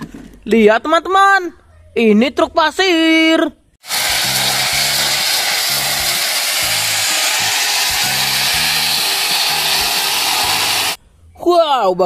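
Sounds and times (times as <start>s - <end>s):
gravel pouring: 3.8s - 11.0s.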